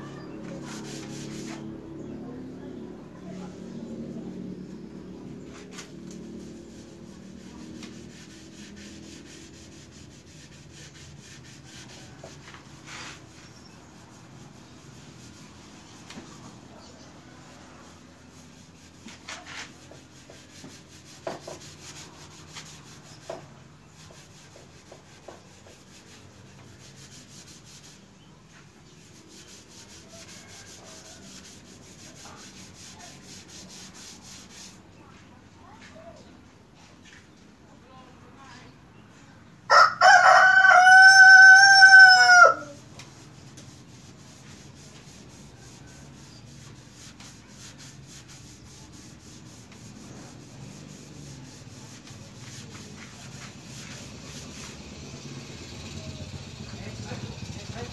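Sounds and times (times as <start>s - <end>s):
sanding metal by hand: 0.1s - 2.0s, 3.4s - 35.0s, 41.1s - 57.9s.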